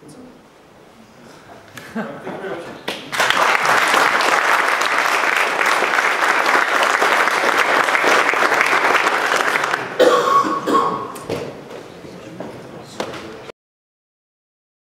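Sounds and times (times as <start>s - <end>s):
audience applauding: 2.9s - 10.0s.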